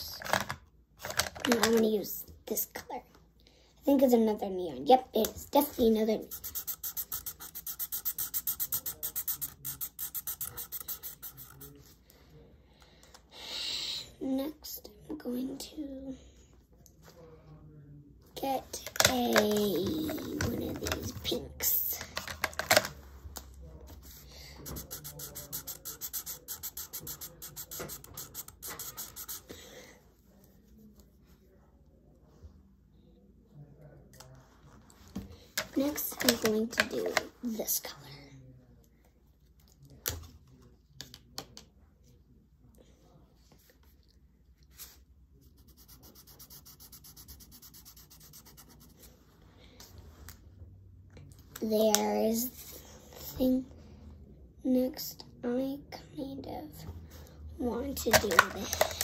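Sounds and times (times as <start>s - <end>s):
marker scribbling on paper: 5.9s - 11.8s, 24.6s - 29.5s, 45.4s - 49.1s.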